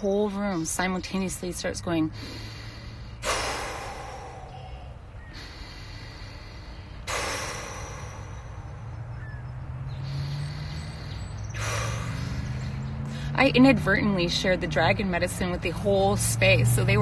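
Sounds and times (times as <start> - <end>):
woman breathing forcefully: 2.1 - 13.4.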